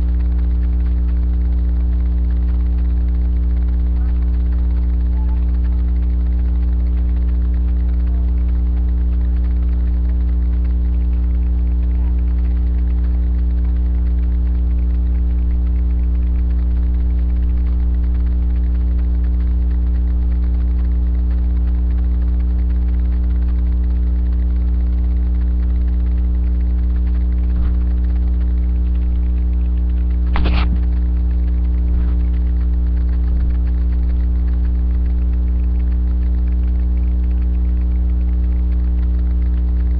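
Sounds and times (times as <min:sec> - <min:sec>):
electrical mains hum: 0:00.0 - 0:39.9
short click: 0:30.3 - 0:31.0.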